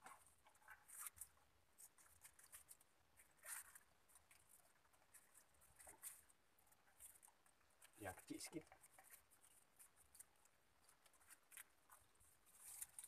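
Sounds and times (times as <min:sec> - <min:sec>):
gloved hands rustling net: 0:11.0 - 0:13.0.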